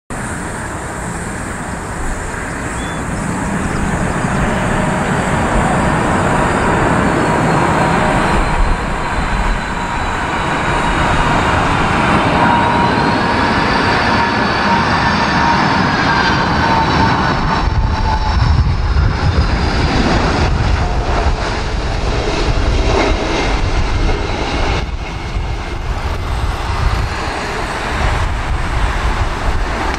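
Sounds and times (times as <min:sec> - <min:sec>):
jet engine whine: 0:00.1 - 0:29.9
jet roar: 0:00.1 - 0:29.9
wind rumble on microphone: 0:00.2 - 0:29.9.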